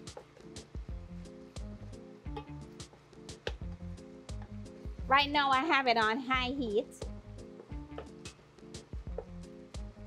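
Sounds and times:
background music with steady beat: 0:00.0 - 0:10.0.

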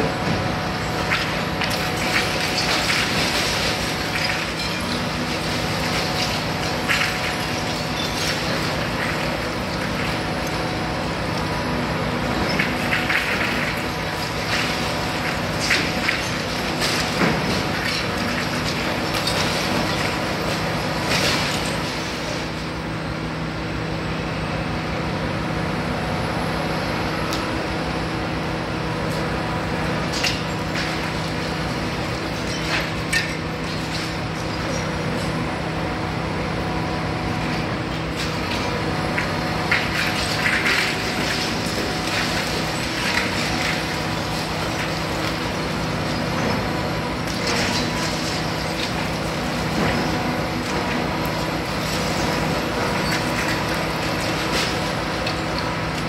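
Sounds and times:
diesel engine drone: 0:00.0 - 0:56.0
concrete cracking and clattering: 0:00.9 - 0:10.6, 0:12.4 - 0:22.5, 0:30.1 - 0:35.3, 0:37.5 - 0:56.0.

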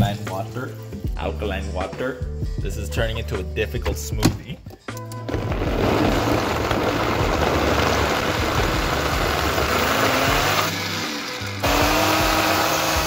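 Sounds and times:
background music: 0:00.0 - 0:13.0
blender running: 0:05.3 - 0:13.0.

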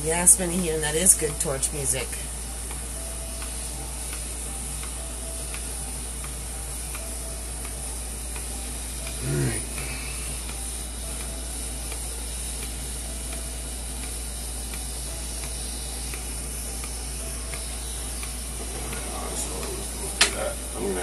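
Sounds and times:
gas torch flame hissing: 0:00.0 - 0:21.0.

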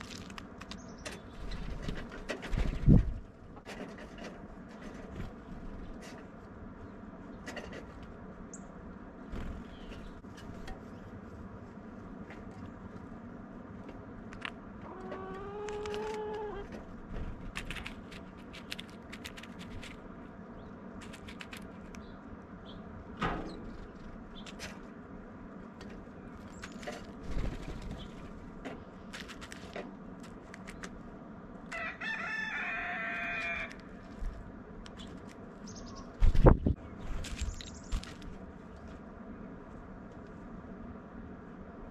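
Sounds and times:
birds pecking seeds: 0:00.0 - 0:40.6
rooster crowing: 0:31.7 - 0:33.8.

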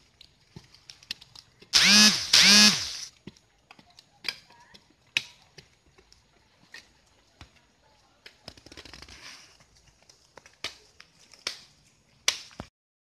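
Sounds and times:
chainsaw revving: 0:01.7 - 0:03.1.

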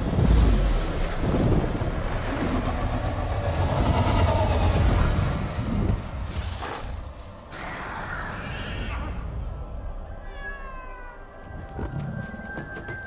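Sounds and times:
deep creature rumble and crashing: 0:00.0 - 0:08.6.

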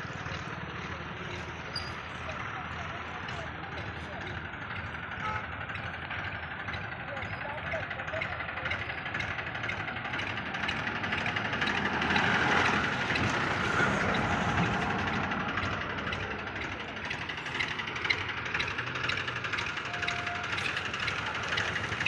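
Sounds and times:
tractor diesel engines under load: 0:00.0 - 0:22.0.

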